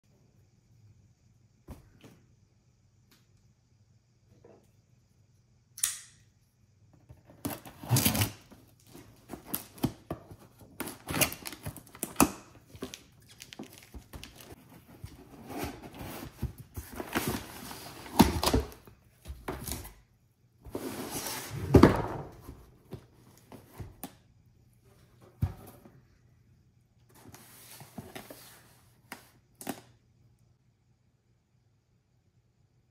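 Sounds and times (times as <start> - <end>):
cardboard scraping and tearing: 7.4 - 8.5.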